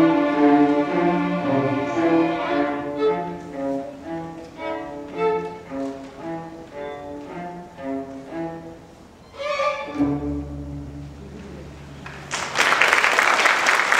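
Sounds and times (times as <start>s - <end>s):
string orchestra playing: 0.0s - 12.0s
applause: 12.0s - 13.9s.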